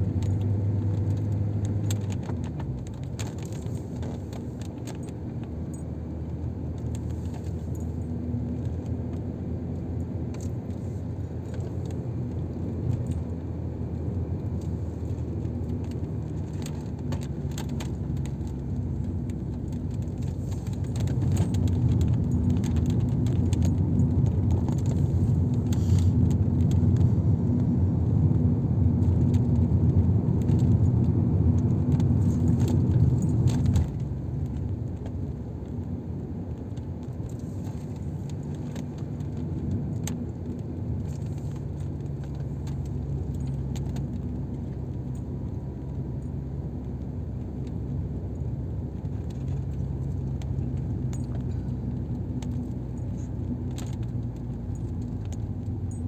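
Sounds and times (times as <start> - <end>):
engine and tyre rumble: 0.0 - 56.0
small rattles and clicks: 0.1 - 56.0.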